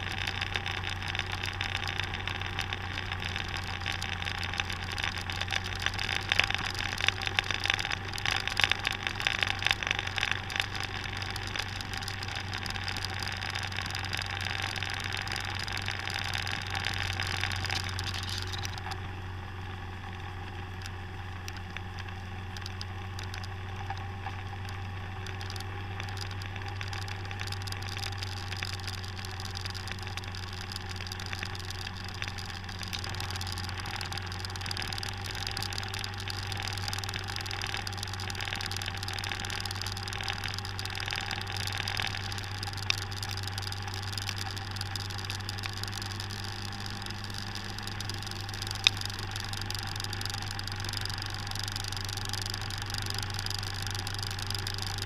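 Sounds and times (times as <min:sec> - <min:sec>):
wind and road noise: 0:00.0 - 0:55.0
sharp tick: 0:20.8 - 0:55.0.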